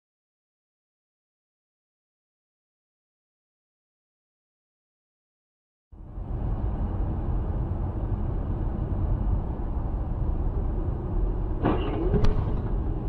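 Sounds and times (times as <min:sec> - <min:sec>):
car road and engine rumble: 0:06.0 - 0:13.0
sharp click: 0:11.6 - 0:12.7.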